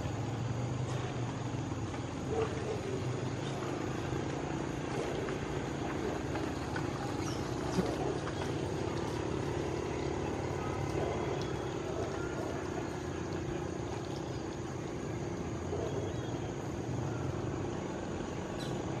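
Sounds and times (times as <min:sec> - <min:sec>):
distant motor drone: 0:00.0 - 0:19.0
faint bird chirps: 0:18.3 - 0:19.0.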